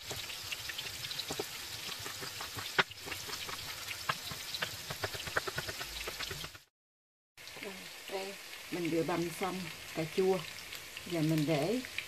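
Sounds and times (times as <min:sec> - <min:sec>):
tofu sizzling in a pan: 0:00.0 - 0:06.7, 0:07.4 - 0:12.0
knife chopping on plastic board: 0:01.2 - 0:06.6.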